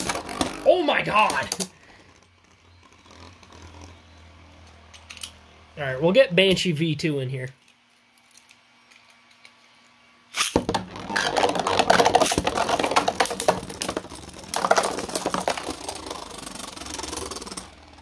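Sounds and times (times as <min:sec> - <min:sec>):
spinning tops launched: 0:10.3 - 0:18.0
spinning tops clattering: 0:10.4 - 0:17.9.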